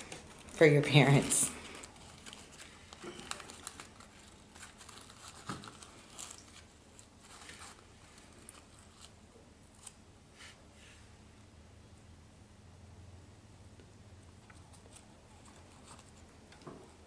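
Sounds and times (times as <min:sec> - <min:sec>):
paper coffee filter crinkling: 0:00.0 - 0:10.0, 0:14.4 - 0:17.0.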